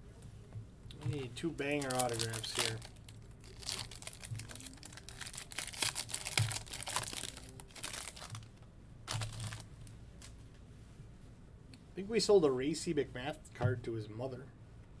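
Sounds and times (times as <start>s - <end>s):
foil wrapper crinkling: 1.1s - 8.5s, 9.1s - 9.7s.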